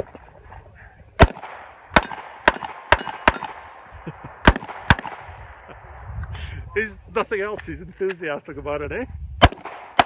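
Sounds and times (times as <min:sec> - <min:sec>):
pistol shots: 0:01.2 - 0:03.8, 0:04.4 - 0:05.3, 0:09.4 - 0:10.0.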